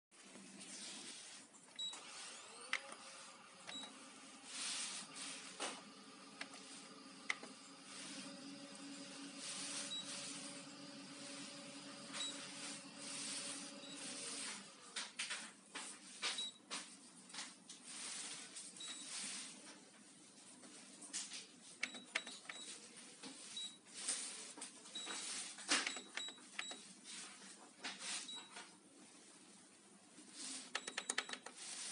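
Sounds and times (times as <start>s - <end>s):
key-press beeps: 1.8s - 2.0s, 3.6s - 4.0s, 12.2s - 12.5s, 21.8s - 22.8s, 25.8s - 26.9s, 30.7s - 31.6s
copier running hum: 1.8s - 15.4s
short high beeps: 12.0s - 14.2s.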